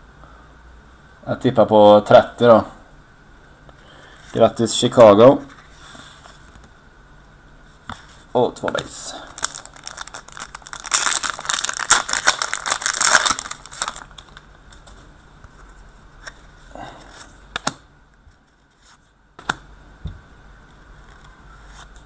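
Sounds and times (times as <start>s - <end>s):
wrapper crinkling and tearing: 9.2s - 15.0s.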